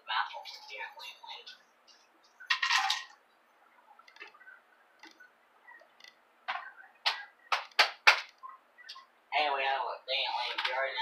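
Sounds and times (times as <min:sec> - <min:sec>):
faint clicks: 0:03.9 - 0:09.1
sharp knocks: 0:06.5 - 0:08.4.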